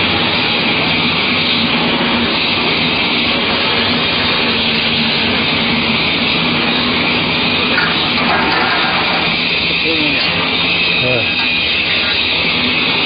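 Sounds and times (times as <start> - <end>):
loud rushing noise: 0.0 - 13.0.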